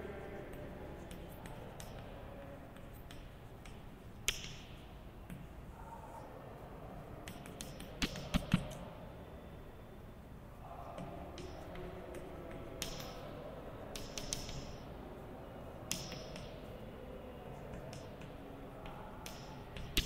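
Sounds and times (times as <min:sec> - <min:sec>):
faint room hiss: 0:00.0 - 0:20.0
chalk tapping on blackboard: 0:01.0 - 0:05.5, 0:07.2 - 0:08.8, 0:13.9 - 0:14.9, 0:15.9 - 0:16.7.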